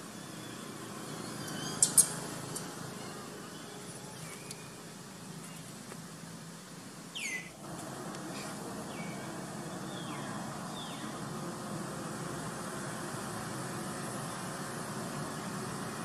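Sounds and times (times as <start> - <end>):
steady background hum: 0.0 - 16.0
high chirping call falling in pitch: 7.2 - 7.6.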